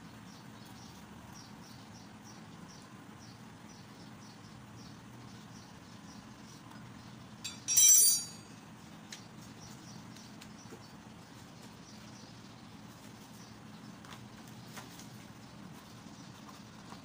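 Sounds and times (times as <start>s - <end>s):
metal tools clinking on a bench: 7.4s - 8.6s.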